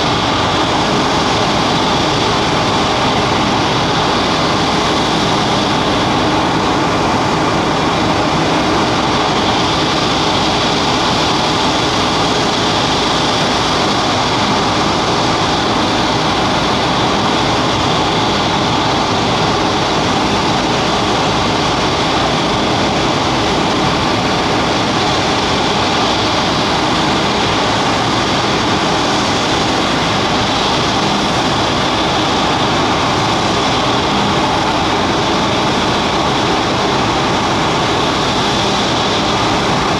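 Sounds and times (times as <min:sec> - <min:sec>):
propeller engines droning: 0:00.0 - 0:39.9.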